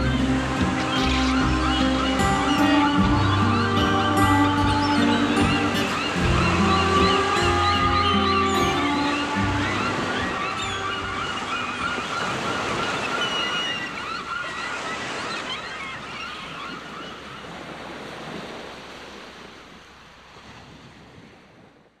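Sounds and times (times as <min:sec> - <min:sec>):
high wavering tones: 0:00.0 - 0:14.0
sea waves washing: 0:00.0 - 0:22.0.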